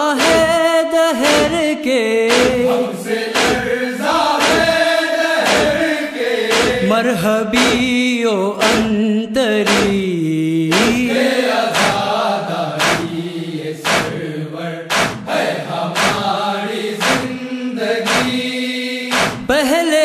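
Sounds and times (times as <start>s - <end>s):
male chorus chanting: 0.0s - 20.0s
sharp percussive beat: 0.2s - 1.7s, 2.3s - 8.0s, 8.6s - 9.0s, 9.6s - 10.1s, 10.7s - 12.2s, 12.8s - 13.2s, 13.8s - 14.2s, 14.9s - 16.4s, 17.0s - 17.4s, 18.0s - 18.5s, 19.1s - 19.6s.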